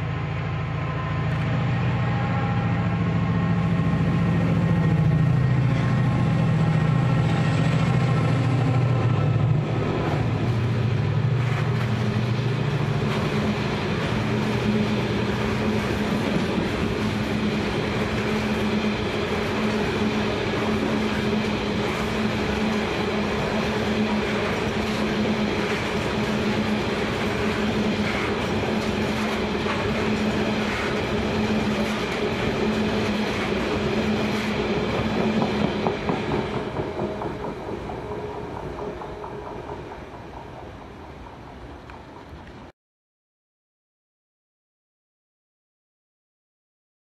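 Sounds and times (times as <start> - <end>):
train wheels clacking over rail joints: 6.9 - 42.7.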